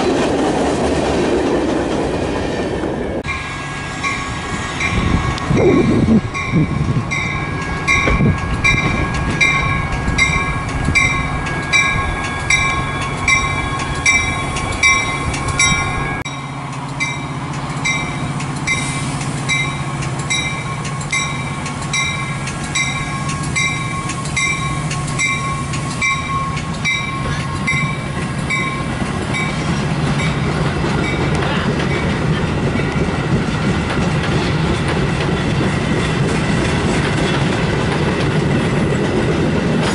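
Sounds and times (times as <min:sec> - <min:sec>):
train cars clacking over rails: 0:00.0 - 0:39.9
warning bell dinging: 0:03.2 - 0:29.6.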